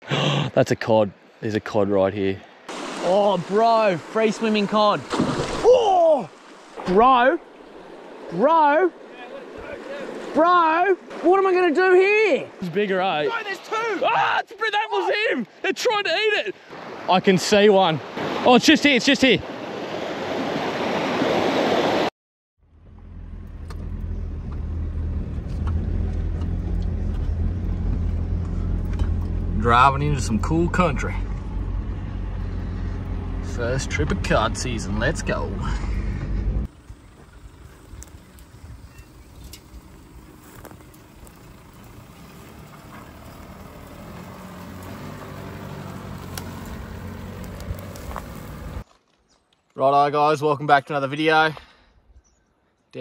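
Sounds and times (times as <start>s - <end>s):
rushing rapids: 2.6s - 14.2s, 16.3s - 22.1s
vehicle driving on dirt track: 22.6s - 48.9s
clicks and knocks over rough ground: 42.5s - 49.8s.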